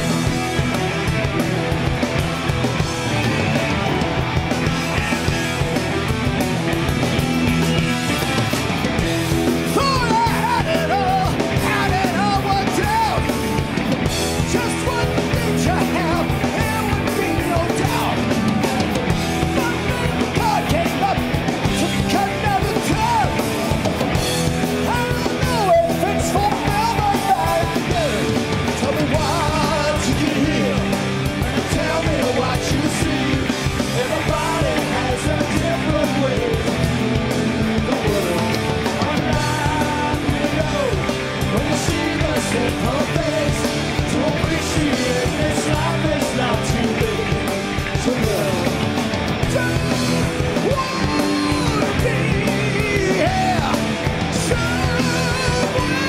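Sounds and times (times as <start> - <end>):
bass: 0.0 - 56.0
distorted electric guitars: 0.0 - 56.0
drums: 0.0 - 56.0
man singing: 9.6 - 13.6, 14.2 - 23.8, 24.6 - 56.0.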